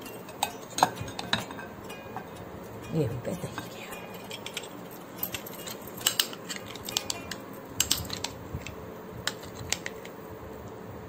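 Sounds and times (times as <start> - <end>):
glass bowls and spoon clinking: 0.0 - 8.4.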